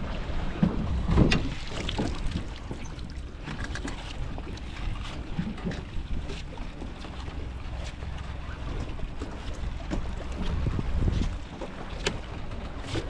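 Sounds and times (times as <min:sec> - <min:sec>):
wind rumble on microphone: 0:00.0 - 0:13.0
water dripping and splashing: 0:01.1 - 0:10.6.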